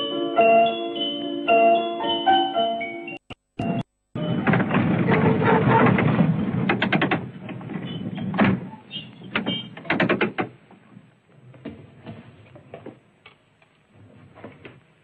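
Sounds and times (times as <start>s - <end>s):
tram rumbling on rails: 3.6s - 13.0s
tram wheels clacking: 3.6s - 13.0s.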